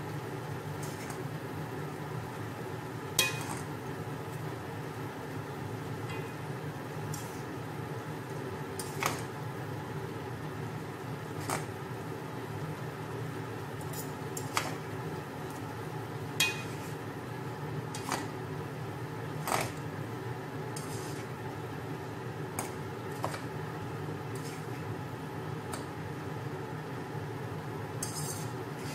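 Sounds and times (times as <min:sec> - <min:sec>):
steady low hum: 0:00.0 - 0:28.9
utensils clinking against a pot: 0:03.2 - 0:03.7, 0:16.4 - 0:17.0, 0:28.0 - 0:28.6.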